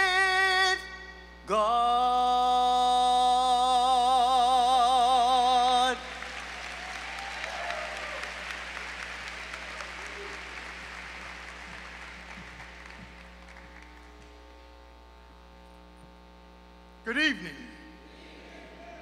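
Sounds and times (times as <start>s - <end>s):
low electrical hum: 0.0s - 19.0s
audience applauding: 5.0s - 14.5s.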